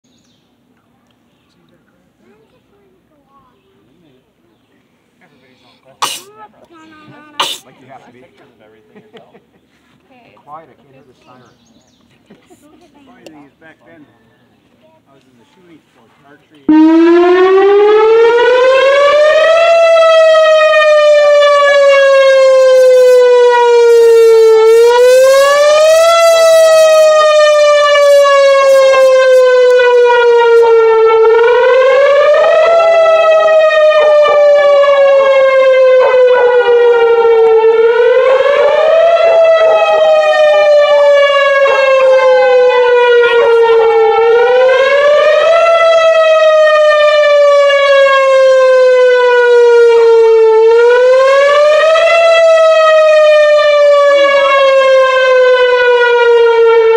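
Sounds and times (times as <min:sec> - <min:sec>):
warning siren wailing: 0:16.7 - 0:56.9
dog howling: 0:38.6 - 0:44.3.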